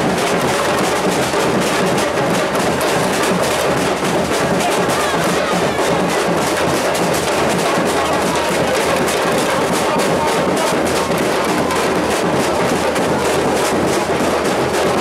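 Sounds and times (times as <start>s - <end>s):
crowd: 0.0s - 15.0s
percussion band drumming: 0.0s - 15.0s.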